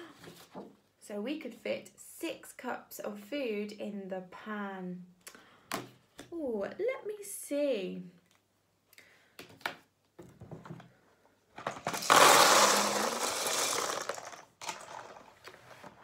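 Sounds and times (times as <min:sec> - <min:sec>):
dry pasta rattling into a tub: 0:11.7 - 0:15.4.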